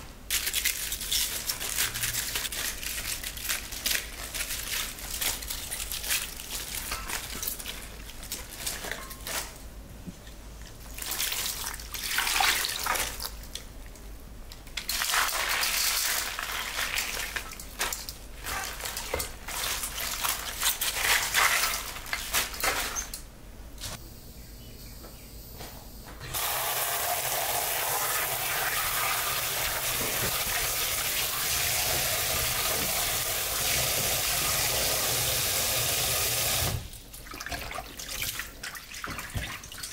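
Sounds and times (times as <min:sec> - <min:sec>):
cabbage leaves crackling rustles: 0:00.3 - 0:09.6, 0:14.9 - 0:23.1
kitchen tap running into bowl: 0:26.3 - 0:36.8.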